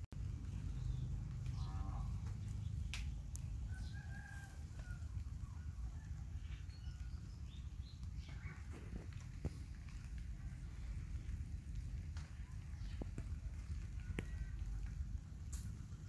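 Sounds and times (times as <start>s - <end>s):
low outdoor rumble: 0.0s - 16.0s
rooster crowing: 3.7s - 7.2s.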